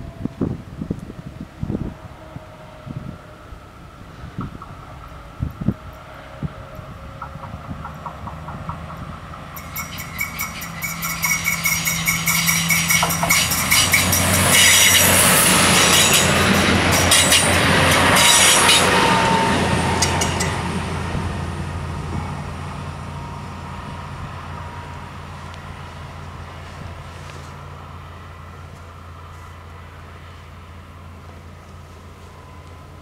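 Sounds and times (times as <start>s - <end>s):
train wheels clattering on track: 4.2s - 6.1s, 6.8s - 22.8s.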